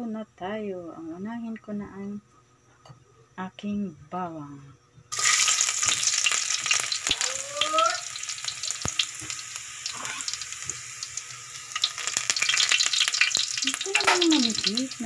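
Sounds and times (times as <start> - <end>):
garlic sizzling in hot oil: 5.1 - 15.0.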